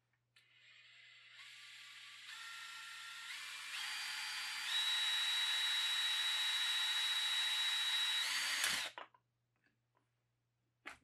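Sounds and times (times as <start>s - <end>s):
cordless drill whining: 0.5s - 9.0s.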